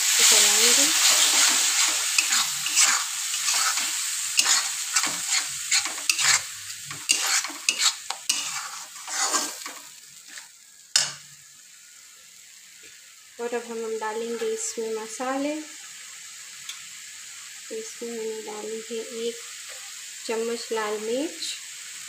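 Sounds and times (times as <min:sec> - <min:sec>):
tomato sizzling in a pan: 0:00.0 - 0:22.0
metal spatula scraping: 0:00.2 - 0:11.2.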